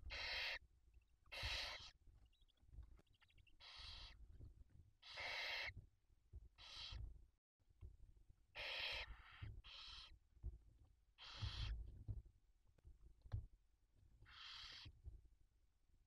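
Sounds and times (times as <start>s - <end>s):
barn owls hissing: 0.1s - 0.6s, 1.3s - 2.0s, 3.6s - 4.2s, 5.0s - 5.8s, 6.6s - 7.0s, 8.5s - 10.1s, 11.2s - 11.8s, 14.3s - 15.0s.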